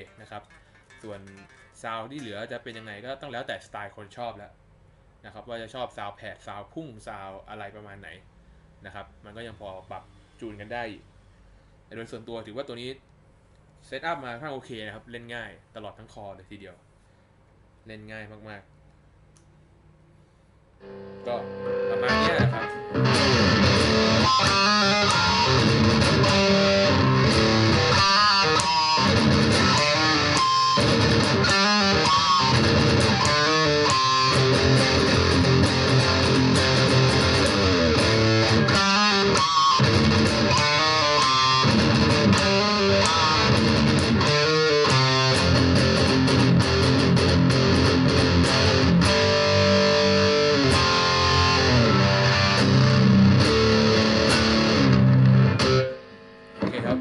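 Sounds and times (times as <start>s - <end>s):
distorted electric guitar riffs: 0.0s - 3.1s, 20.8s - 57.0s.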